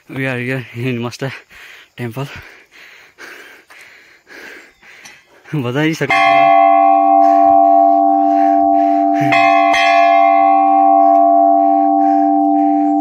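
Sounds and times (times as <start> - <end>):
temple bell ringing: 6.0 - 13.0.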